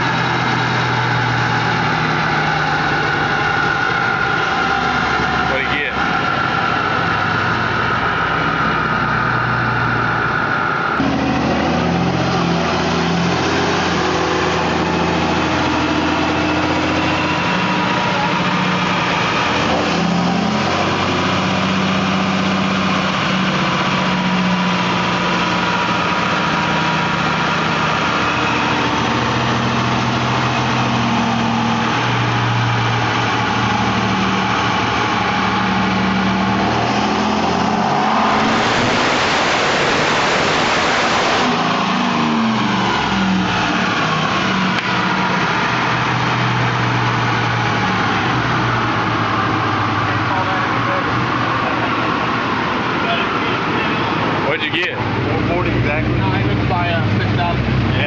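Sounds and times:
diesel engine running at low revs: 0.0 - 58.0
high steady whine: 33.0 - 54.4.

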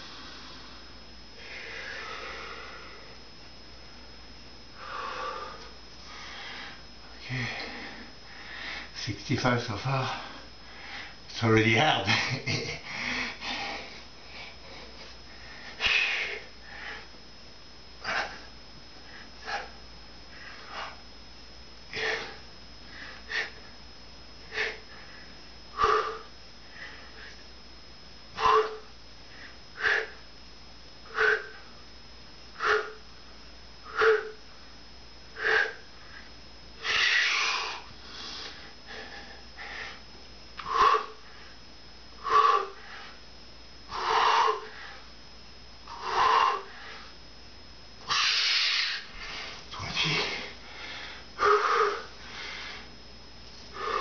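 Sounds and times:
man breathing out hard: 1.4 - 3.2, 4.8 - 8.9, 10.1 - 11.2, 12.8 - 17.1, 21.9 - 23.6, 24.4 - 27.4, 28.4 - 30.2, 31.0 - 31.7, 35.4 - 40.0, 40.6 - 41.6, 42.2 - 43.2, 43.9 - 45.1, 45.9 - 47.2, 48.1 - 53.0, 53.7 - 54.0.

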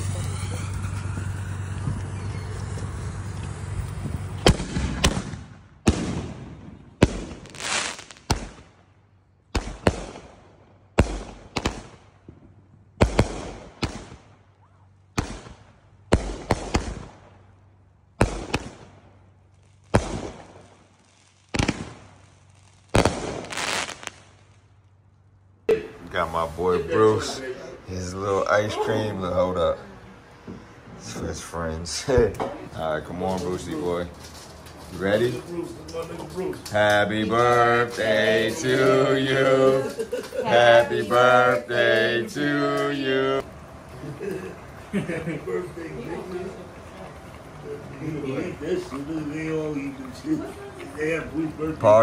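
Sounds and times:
spark fountain hissing: 0.0 - 4.6
firework shells banging and crackling: 0.0 - 26.5, 32.0 - 47.9.

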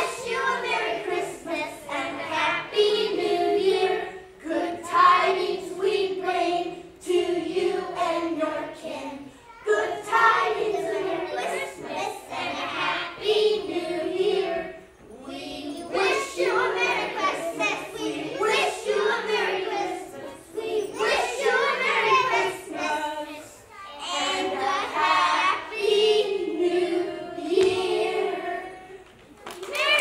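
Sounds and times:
children singing: 0.0 - 29.2.

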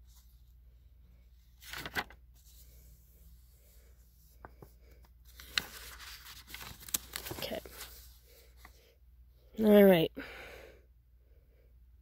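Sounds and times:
paper pages rustling: 1.4 - 8.8.

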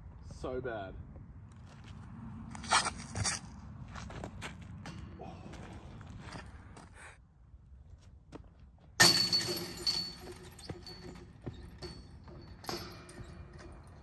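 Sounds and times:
disc clanging metal basket chains: 9.0 - 14.0.

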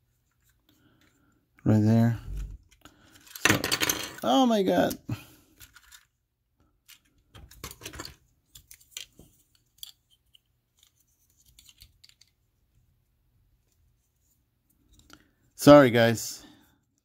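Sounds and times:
plastic toy parts clicking: 6.9 - 12.4.

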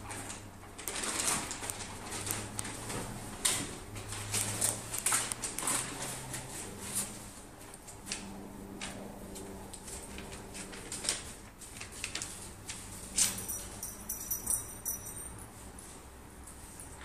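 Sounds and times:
light metallic jingle: 13.1 - 16.0.

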